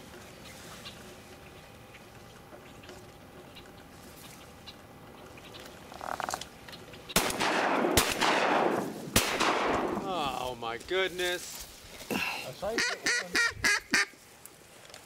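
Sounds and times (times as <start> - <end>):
shotgun shots echoing: 7.2 - 10.1
buzzy duck call: 12.7 - 14.2.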